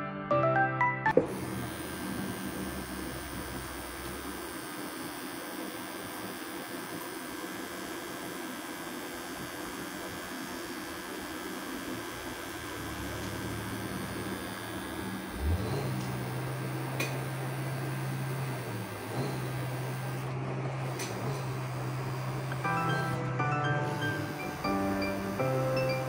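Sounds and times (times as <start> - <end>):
tattoo machine buzzing: 1.2 - 26.0.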